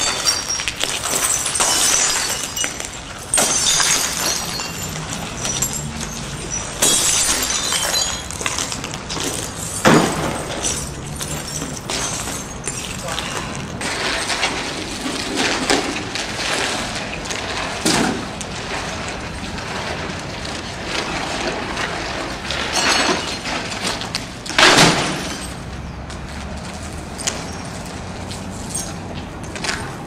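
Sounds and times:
heavy impacts on glass: 0:00.0 - 0:16.8, 0:21.0 - 0:25.8
broken glass crackling and scraping: 0:00.0 - 0:25.8.

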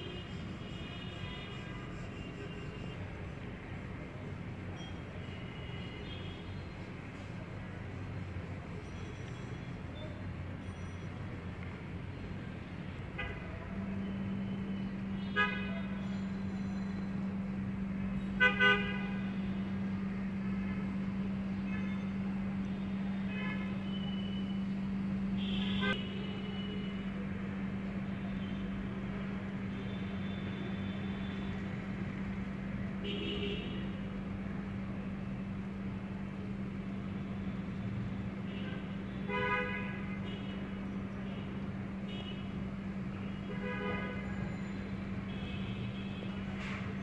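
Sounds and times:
street traffic: 0:00.0 - 0:47.0
vehicle horns honking: 0:13.1 - 0:16.3, 0:18.3 - 0:19.7, 0:25.3 - 0:27.2, 0:33.0 - 0:34.0, 0:38.5 - 0:40.6, 0:43.3 - 0:46.9.

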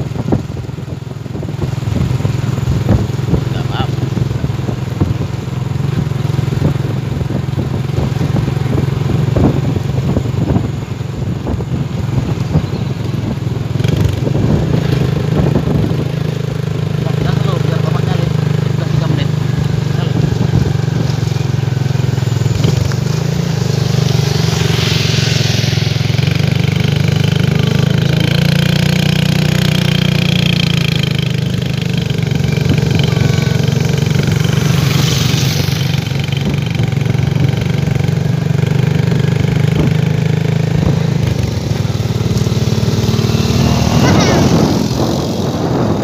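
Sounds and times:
motorcycle engine running: 0:00.0 - 0:46.0
rushing hiss: 0:20.9 - 0:28.0, 0:33.1 - 0:37.1.

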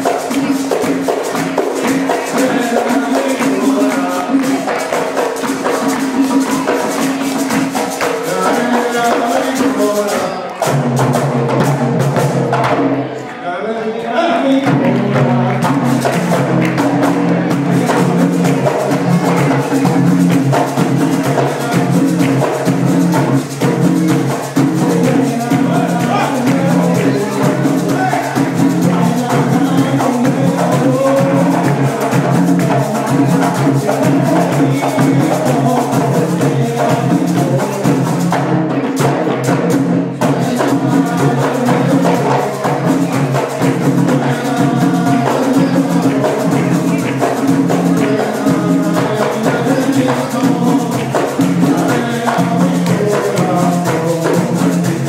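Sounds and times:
frame drums beating rhythm: 0:00.0 - 0:13.2, 0:14.4 - 0:55.0
group singing: 0:00.0 - 0:55.0.

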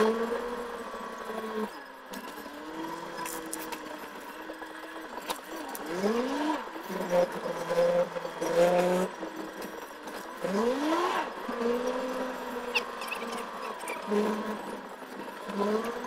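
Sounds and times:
vehicle engine speeding up: 0:10.4 - 0:14.8.

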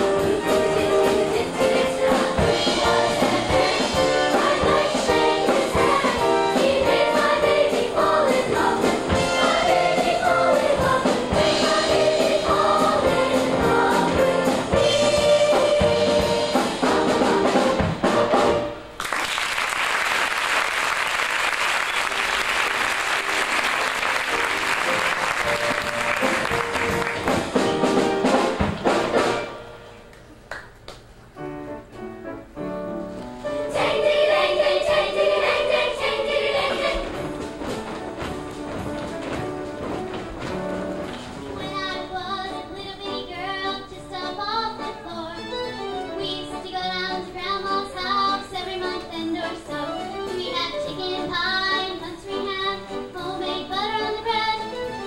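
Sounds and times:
children's choir singing: 0:00.0 - 0:17.8, 0:33.5 - 0:37.9
instrumental accompaniment: 0:00.0 - 0:19.0, 0:21.6 - 0:55.0
audience applause: 0:19.0 - 0:27.5.

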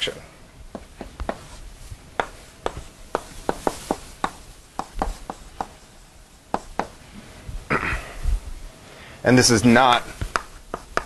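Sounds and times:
chalk tapping on blackboard: 0:00.7 - 0:01.6, 0:02.2 - 0:05.8, 0:06.5 - 0:07.0, 0:10.2 - 0:11.0
chalk scratching: 0:02.2 - 0:05.8, 0:10.3 - 0:11.0.

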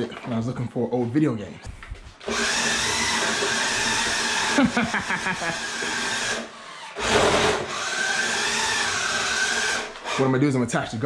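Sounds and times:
toy car motor whining: 0:02.3 - 0:10.4.

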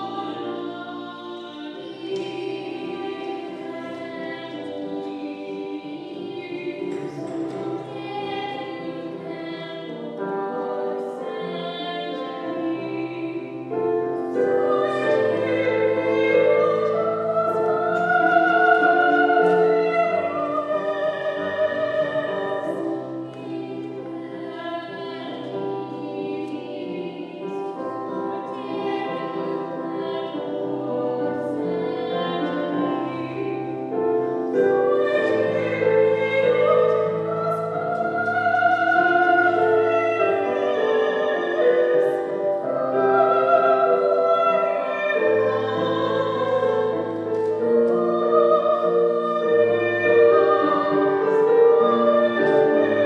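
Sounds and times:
choir singing in harmony: 0:00.0 - 0:53.0.

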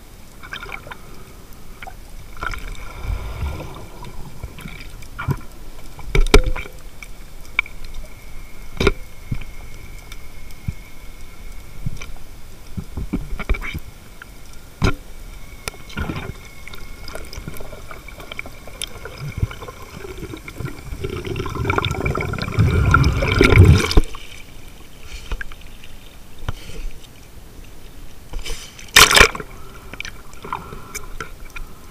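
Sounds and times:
water sloshing and gurgling: 0:00.4 - 0:07.2, 0:16.0 - 0:26.2
splash: 0:02.3 - 0:06.6, 0:17.1 - 0:24.5, 0:28.4 - 0:29.4.

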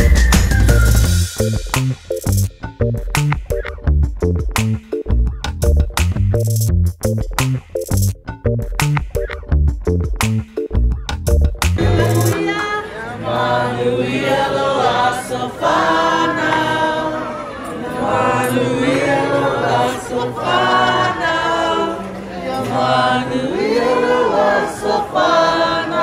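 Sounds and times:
group singing unaccompanied: 0:11.8 - 0:26.0.

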